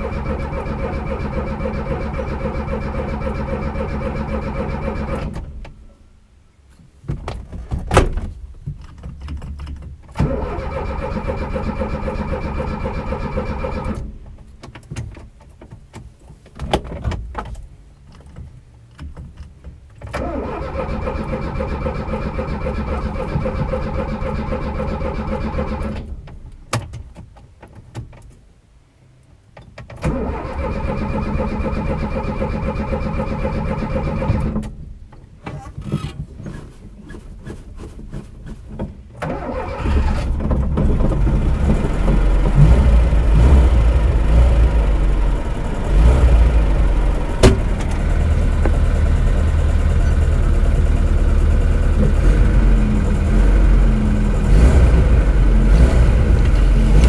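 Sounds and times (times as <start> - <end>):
engine idling: 0.0 - 5.3, 39.3 - 57.0
engine cranking on starter: 0.0 - 5.7, 10.1 - 14.3, 20.0 - 26.4, 30.0 - 34.8, 39.1 - 57.0.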